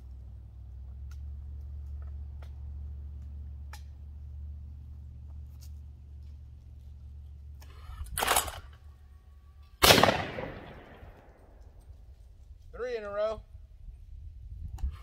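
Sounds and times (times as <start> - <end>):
shotgun shot: 9.8 - 11.4.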